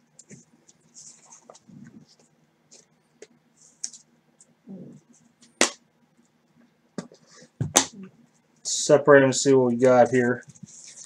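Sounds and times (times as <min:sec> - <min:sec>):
sharp card snap: 0:05.6 - 0:05.8.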